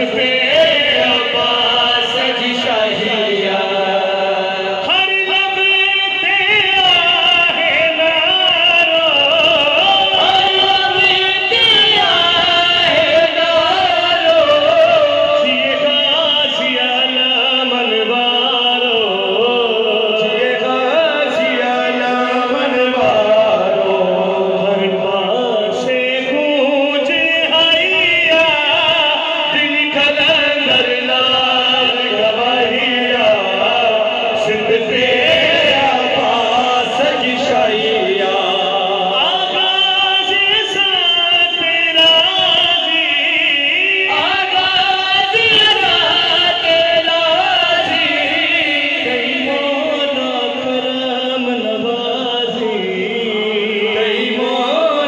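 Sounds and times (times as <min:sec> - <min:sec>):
men singing devotional song: 0:00.0 - 0:55.0.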